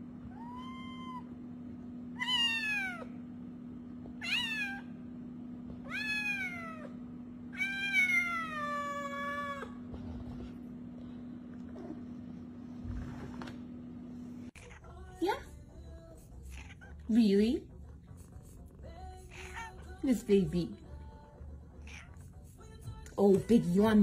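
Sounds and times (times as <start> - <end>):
cat meowing: 0.3 - 1.3, 2.2 - 3.1, 4.2 - 4.9, 5.8 - 9.8, 14.6 - 15.0, 16.5 - 17.0, 19.2 - 20.0, 21.8 - 22.2.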